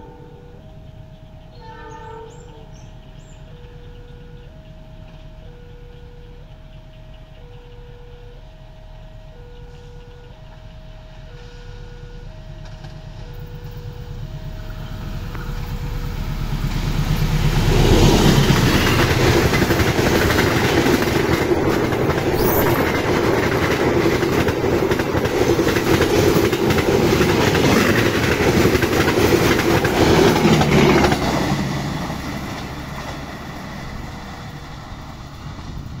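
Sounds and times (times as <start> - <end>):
level crossing warning signal: 0.0 - 35.8
train wheels clattering on rails: 9.5 - 36.0.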